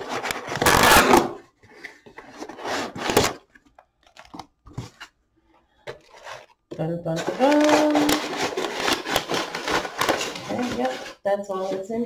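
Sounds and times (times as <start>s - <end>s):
packing material crinkling: 5.9s - 11.7s.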